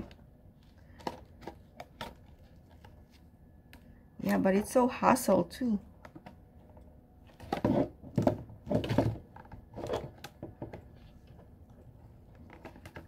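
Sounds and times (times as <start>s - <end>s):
box handling knocks and rustles: 7.3s - 10.9s.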